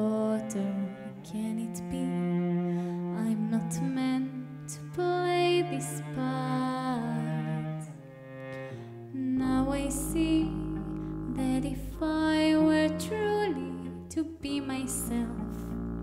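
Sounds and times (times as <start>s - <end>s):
woman singing: 0.0s - 7.9s, 9.1s - 15.8s
bowed cello: 0.0s - 16.0s
double bass: 0.0s - 16.0s.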